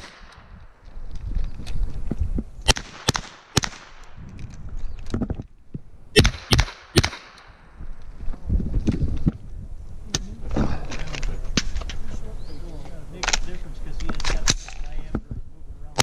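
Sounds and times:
gunshots: 0.0s - 0.5s, 2.6s - 4.1s, 6.2s - 7.6s.

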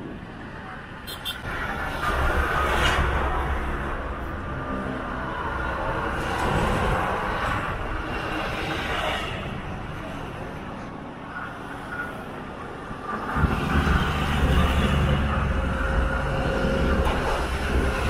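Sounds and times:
highway traffic passing: 0.0s - 18.0s
heavy truck rumble: 11.9s - 18.0s.

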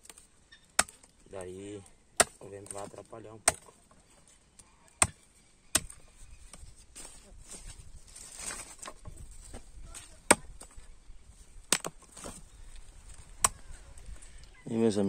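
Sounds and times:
dry stalks rustling: 0.0s - 15.0s
machete chopping: 0.8s - 1.1s, 2.2s - 3.8s, 5.0s - 6.6s, 10.0s - 10.8s, 11.7s - 12.4s.

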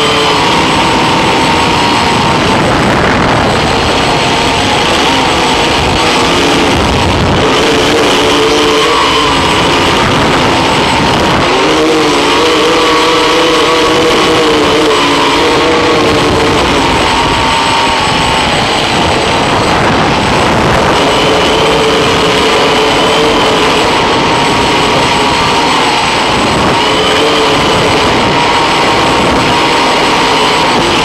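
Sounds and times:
drone motors and propellers whining: 0.0s - 31.0s.

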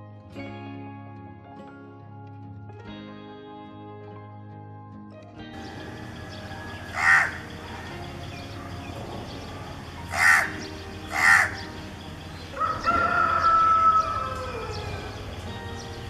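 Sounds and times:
crow cawing: 5.6s - 8.6s, 10.0s - 11.8s, 12.5s - 15.3s.

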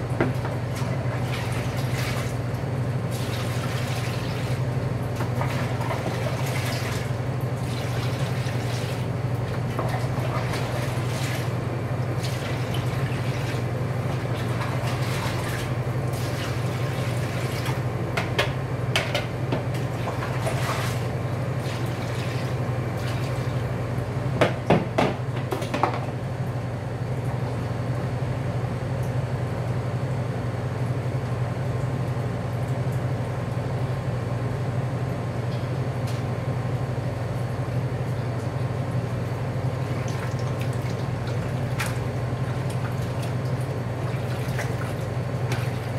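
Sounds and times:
steady low hum: 0.0s - 45.9s
marinade splashing and dripping: 0.4s - 17.8s, 39.3s - 45.9s.

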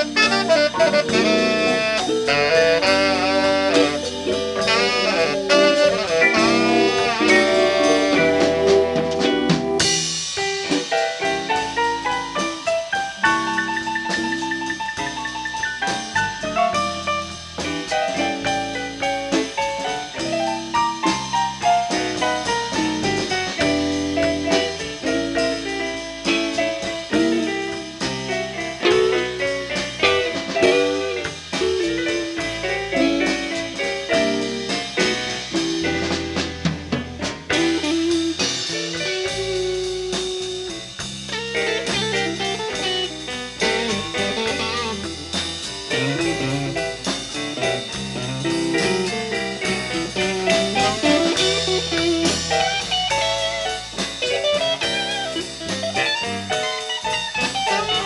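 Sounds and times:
electric guitar lines: 0.0s - 10.0s, 37.5s - 58.0s
bass: 0.0s - 58.0s
drum kit: 0.0s - 58.0s.

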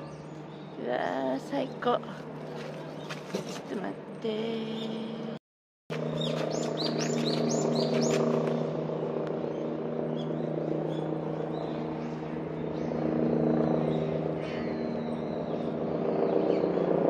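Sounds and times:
steady engine drone: 0.0s - 17.0s
small birds chirping: 6.0s - 8.6s.

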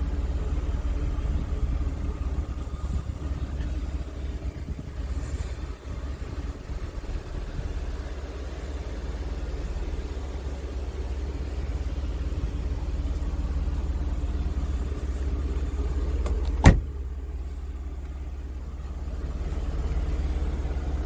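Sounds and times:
steady low rumble: 0.0s - 21.0s
car door shutting thud: 16.2s - 17.0s.

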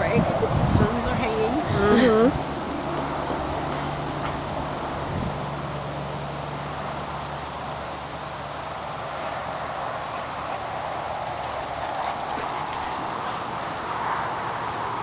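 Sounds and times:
dogs heavy panting: 11.3s - 14.3s.

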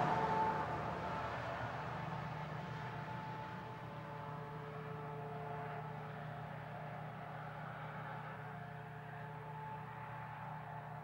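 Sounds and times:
distant truck engine hum: 0.0s - 6.6s.

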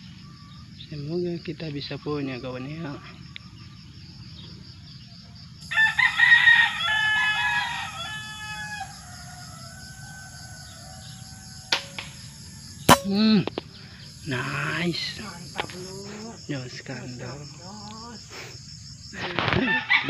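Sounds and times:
rooster crowing: 5.6s - 13.2s, 19.6s - 20.0s
air rifle shot: 12.9s - 13.6s.

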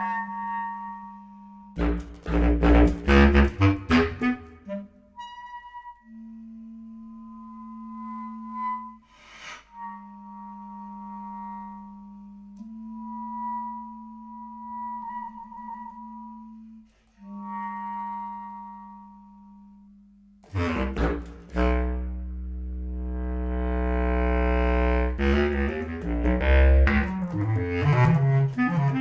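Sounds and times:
bass clarinet multiphonics: 0.0s - 29.0s
airy breath noise: 9.0s - 9.7s.

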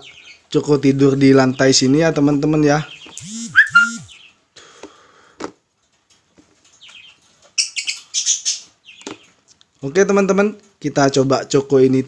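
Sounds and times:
lovebird calling: 2.9s - 4.3s
high-pitched bird chirps: 3.1s - 4.3s.

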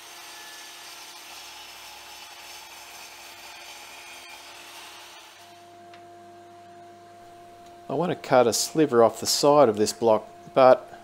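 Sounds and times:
mitre saw cutting wood: 0.0s - 5.6s.

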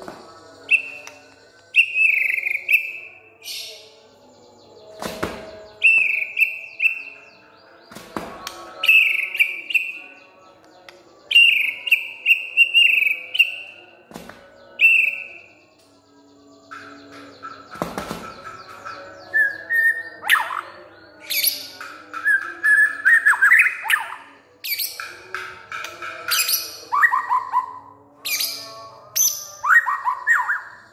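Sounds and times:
bird singing whistled notes: 0.6s - 3.9s, 5.6s - 7.9s, 8.8s - 10.2s, 11.2s - 13.8s, 14.7s - 15.6s.

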